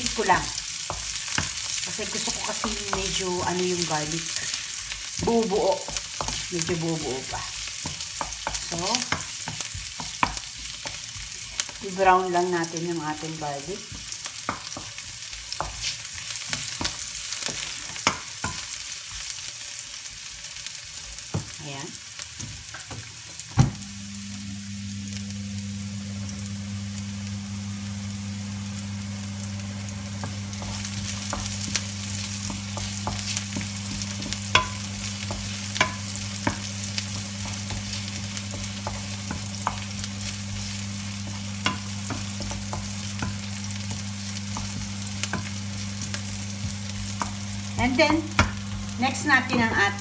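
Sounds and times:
wooden spoon tapping and scraping: 0.0s - 12.1s, 12.7s - 19.4s, 30.0s - 50.0s
garlic sizzling in hot oil: 0.0s - 50.0s.

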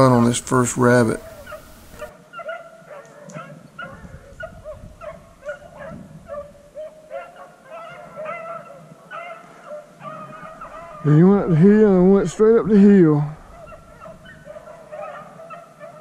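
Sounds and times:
dogs barking and baying: 0.0s - 11.6s, 13.3s - 16.0s.

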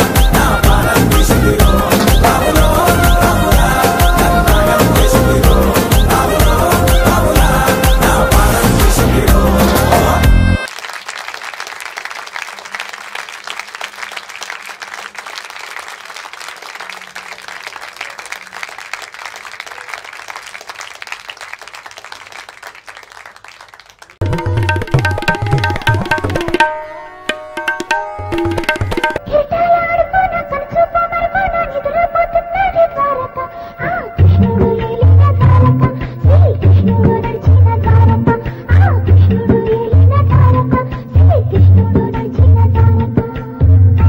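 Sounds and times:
flute melody: 0.0s - 9.0s
percussion beat: 0.0s - 10.4s, 24.2s - 29.2s
recorded song music: 0.0s - 10.7s, 27.6s - 44.0s
audience applauding: 10.7s - 26.6s.

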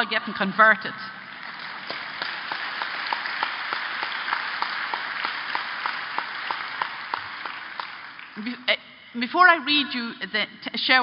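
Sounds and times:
audience applauding: 1.2s - 8.5s
sharp claps: 1.2s - 8.5s.

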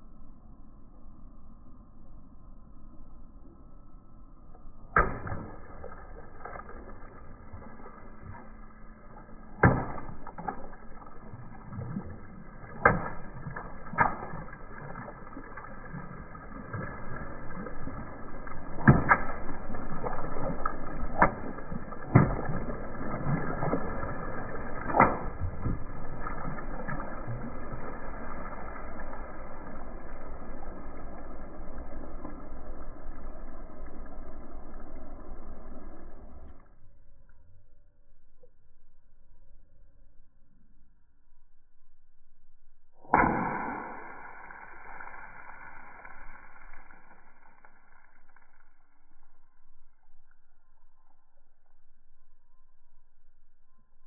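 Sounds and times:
water balloons popping: 4.9s - 8.4s, 9.5s - 27.8s, 43.0s - 48.7s
water splashing: 5.0s - 36.5s, 43.0s - 50.8s.

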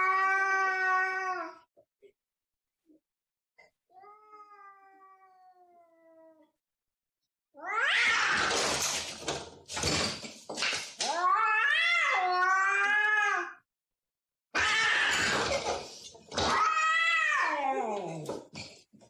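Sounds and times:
cats yowling and screeching: 0.0s - 1.6s, 7.6s - 8.9s, 11.0s - 13.6s, 14.6s - 18.5s.

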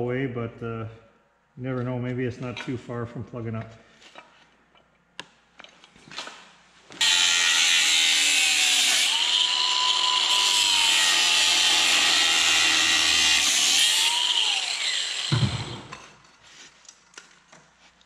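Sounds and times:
angle grinder cutting metal pipe: 7.0s - 16.2s.

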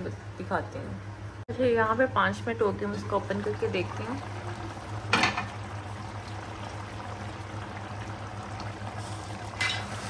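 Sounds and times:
food simmering in a pot: 2.7s - 10.0s.

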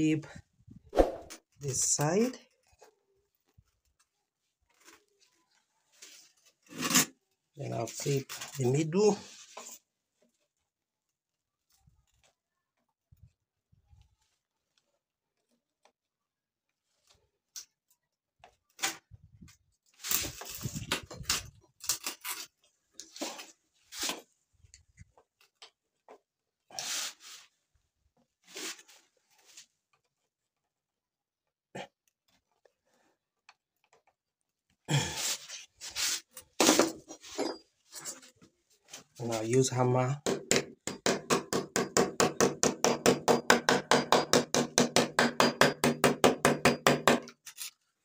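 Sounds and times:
pliers clicking and scraping metal: 47.2s - 47.8s.

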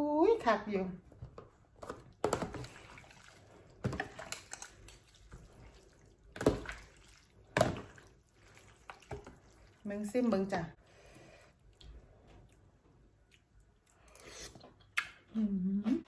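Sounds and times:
broth sloshing and splashing: 2.2s - 10.4s.

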